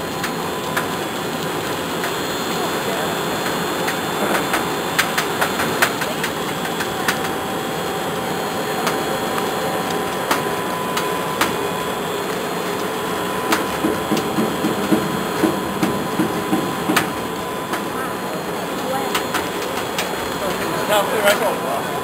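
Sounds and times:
machine whirring: 0.0 - 22.0
sharp machine clicks: 3.4 - 7.4.

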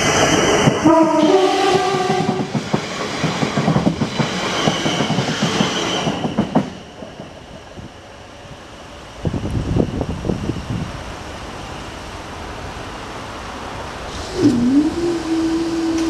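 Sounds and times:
train wheels clacking over rails: 0.0 - 8.0
train steady whine: 0.0 - 16.0.

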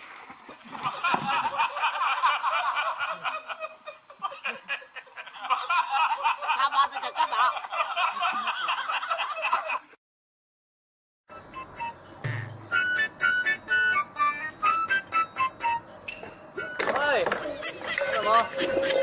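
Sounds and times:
high-pitched rapid laughter: 17.4 - 19.0.

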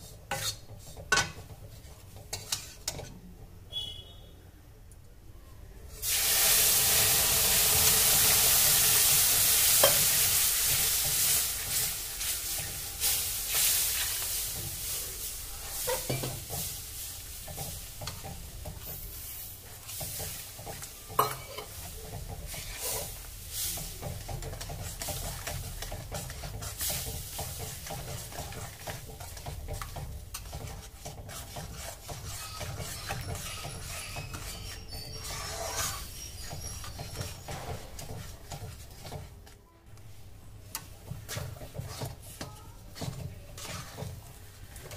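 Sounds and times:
metal spoon scraping pan: 0.0 - 3.2, 7.8 - 39.4, 40.8 - 44.9
liquid sizzling in hot pan: 6.0 - 39.4
mixture bubbling: 6.0 - 44.9.

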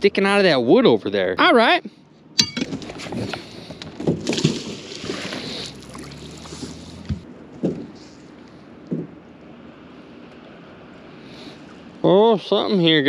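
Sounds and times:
metallic clink: 2.4 - 2.7
rustling and scraping: 2.6 - 8.6
water against hull: 2.8 - 8.0.

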